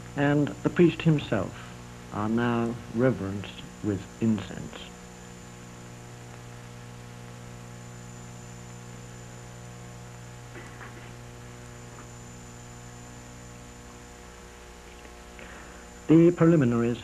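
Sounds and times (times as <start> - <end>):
electrical mains hum: 0.0 - 17.0
high-pitched whine: 0.0 - 17.0.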